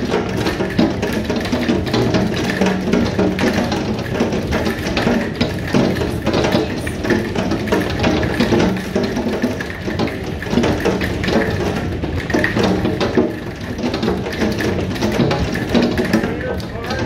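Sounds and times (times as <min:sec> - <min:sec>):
hail and rain on a roof: 0:00.0 - 0:17.0.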